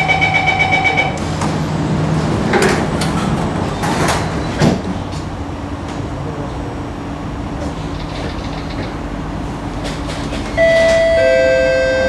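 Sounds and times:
door warning tone beeping: 0.0s - 1.2s, 10.6s - 12.0s
train low hum: 0.0s - 12.0s.

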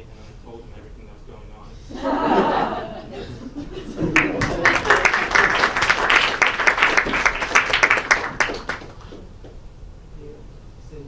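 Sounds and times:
audience applauding: 3.9s - 9.4s.

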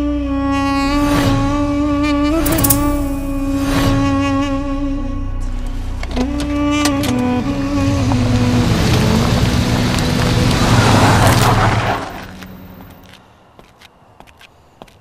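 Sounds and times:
wheels spinning on dirt: 8.0s - 12.5s.

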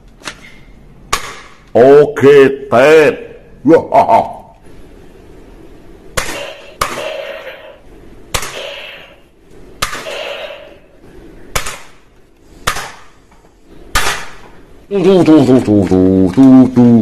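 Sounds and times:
toy gun shots: 6.2s - 9.2s, 9.8s - 10.7s, 13.9s - 14.4s.

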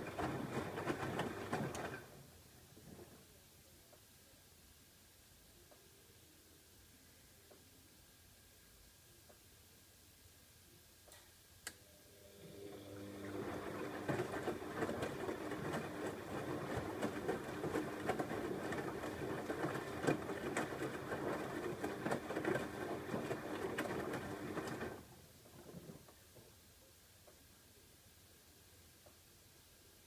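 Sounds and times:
wet laundry sloshing: 0.0s - 2.1s, 13.1s - 25.0s
washing machine motor hum: 0.0s - 3.2s, 12.0s - 26.1s.

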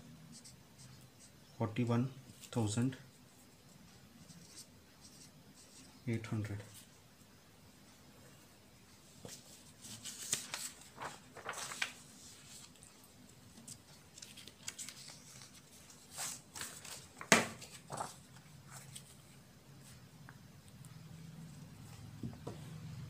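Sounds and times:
paper rustling: 9.2s - 20.0s.

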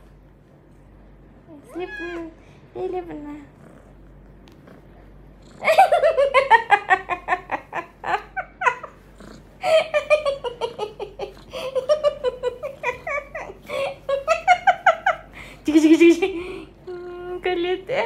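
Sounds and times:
woman laughing: 5.6s - 9.0s, 9.6s - 16.7s.

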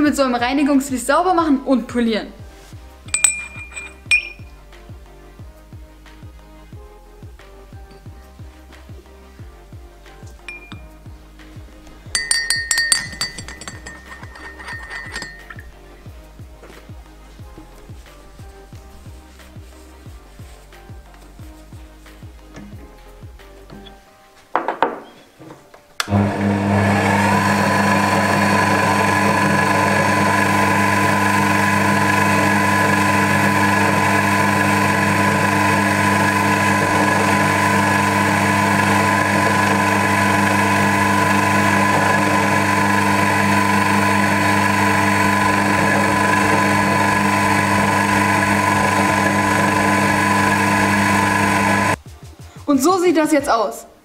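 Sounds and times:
fleece polishing spinning valve: 3.1s - 4.4s, 12.1s - 15.7s
lathe chuck clattering: 12.2s - 15.7s
lathe motor whine: 26.0s - 52.0s.

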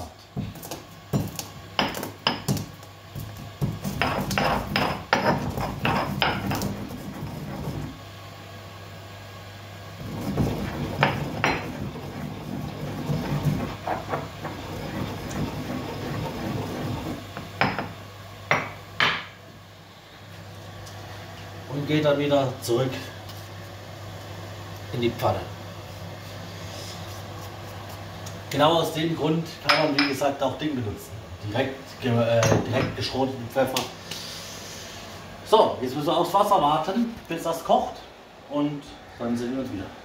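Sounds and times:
pestle grinding peppercorns: 0.0s - 8.0s, 10.0s - 18.7s
stone pestle knocking mortar: 3.6s - 6.7s.

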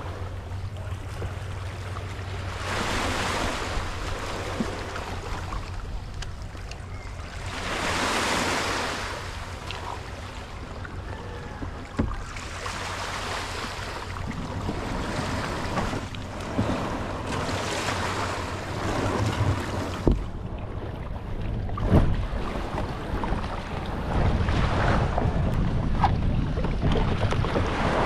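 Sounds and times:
kayak dragged over sand: 0.0s - 6.8s, 7.4s - 10.0s, 10.6s - 20.2s, 21.1s - 28.0s
small waves washing on shore: 0.0s - 28.0s
kayak knocks: 11.3s - 12.4s, 14.3s - 17.5s, 18.8s - 20.3s
wind on microphone: 13.5s - 28.0s.

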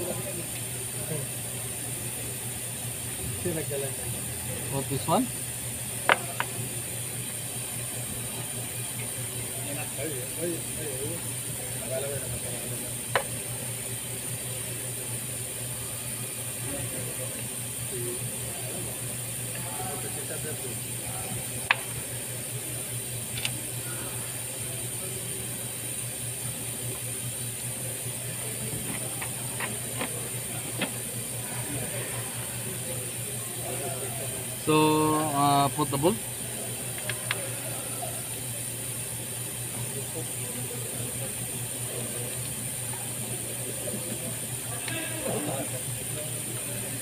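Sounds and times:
steady low hum and hiss: 0.0s - 47.0s
sharp clicks of engine parts: 23.3s - 23.6s.

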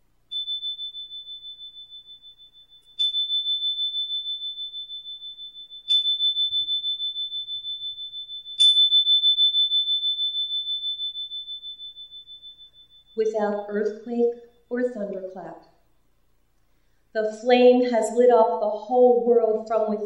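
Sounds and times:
small high-pitched bell ringing: 0.3s - 14.7s.

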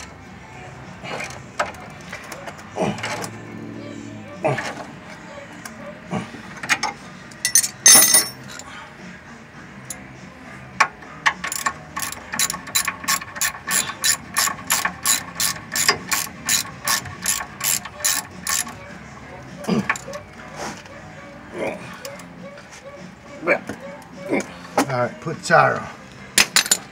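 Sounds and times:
ratchet wrench clicking: 11.2s - 18.8s.

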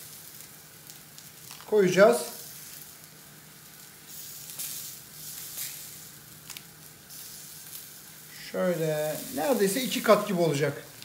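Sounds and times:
burger patty sizzling in pan: 0.0s - 11.0s
lettuce leaves rustling: 8.4s - 11.0s.

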